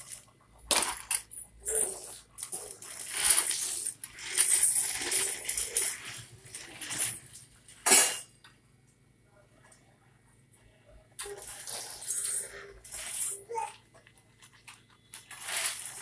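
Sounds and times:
plastic wheels rolling on stone: 0:00.0 - 0:07.3, 0:11.2 - 0:16.0.

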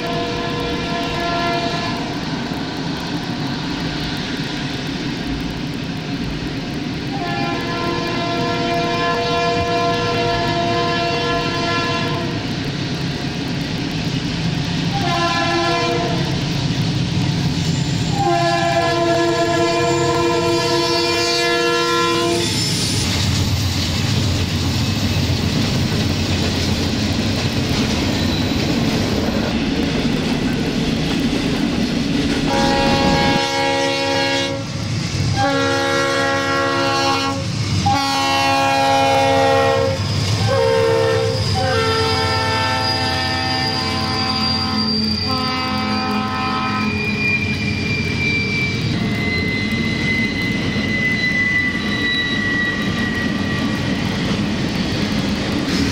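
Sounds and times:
locomotive air horn blasts: 0:00.0 - 0:02.0, 0:07.1 - 0:12.4, 0:14.9 - 0:16.3, 0:18.1 - 0:22.5, 0:32.5 - 0:34.7, 0:35.4 - 0:47.0
lower-pitched horn blasts: 0:00.0 - 0:02.0, 0:07.1 - 0:12.4, 0:14.9 - 0:16.3, 0:18.1 - 0:22.7, 0:32.5 - 0:47.3
freight train rumble and wheel clatter: 0:00.0 - 0:55.9.

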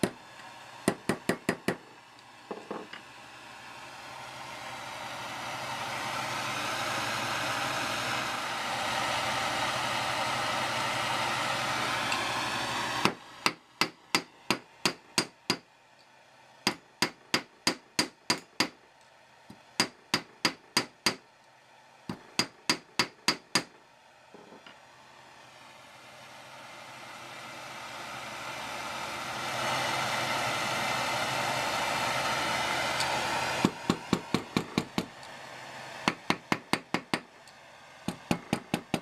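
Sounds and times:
torch flame burning: 0:00.0 - 0:15.2, 0:24.3 - 0:39.0.

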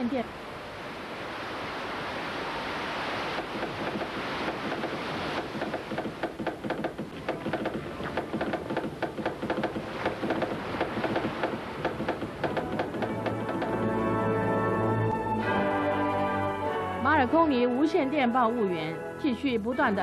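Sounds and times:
telegraph key tapping: 0:03.6 - 0:13.8.

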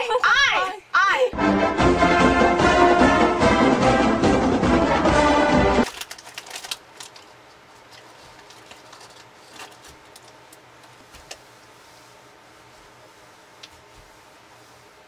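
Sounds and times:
music: 0:01.4 - 0:05.9.

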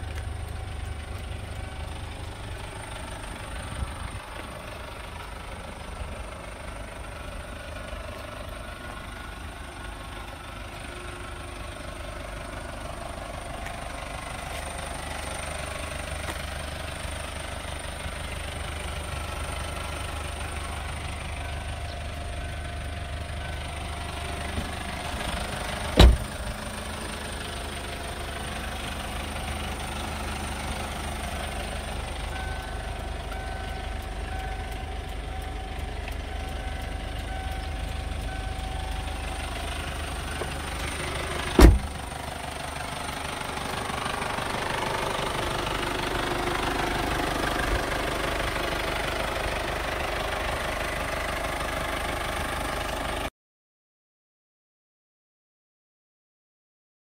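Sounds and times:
diesel engine idling: 0:00.0 - 0:53.3
car door shutting: 0:25.9 - 0:26.6, 0:41.5 - 0:42.0.

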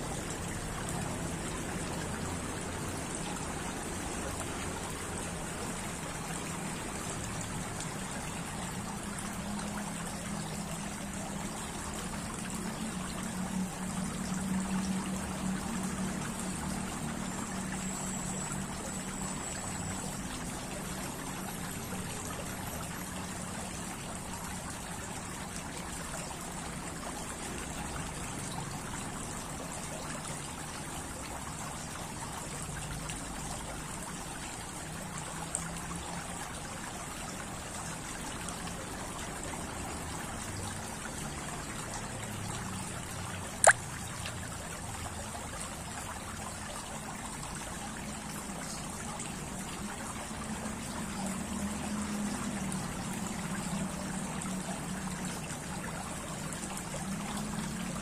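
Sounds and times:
fountain water trickling: 0:00.0 - 0:58.0.

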